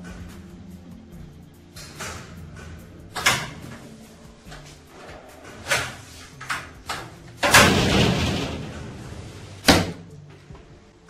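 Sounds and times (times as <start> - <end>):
door banging: 6.9 - 10.1.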